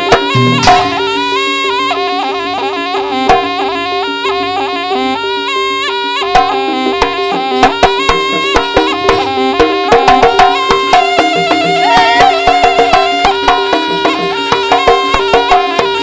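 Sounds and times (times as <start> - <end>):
sharp drum strokes: 0.0 - 1.6, 7.0 - 14.8
shawm playing ornamented melody: 0.0 - 3.1, 3.7 - 16.0
low held drone tones: 0.3 - 1.6.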